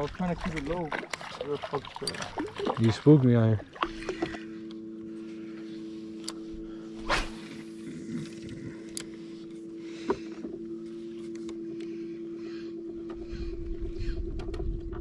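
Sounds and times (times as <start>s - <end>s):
fishing rod cast whoosh: 6.9s - 7.7s
wind rumble on microphone: 13.2s - 15.0s.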